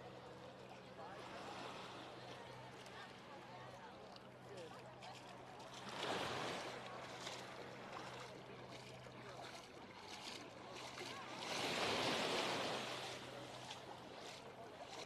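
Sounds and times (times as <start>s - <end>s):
small waves lapping on sand: 0.0s - 15.0s
wave breaking at shoreline: 5.8s - 6.9s, 11.0s - 14.1s.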